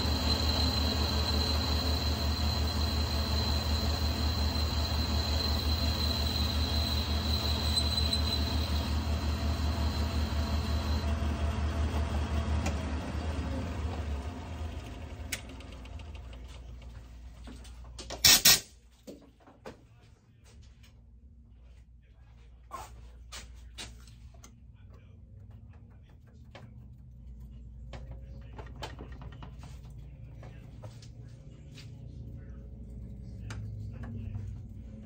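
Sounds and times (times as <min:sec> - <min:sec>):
high whine: 0:00.0 - 0:11.5
metal lathe humming: 0:00.0 - 0:15.3.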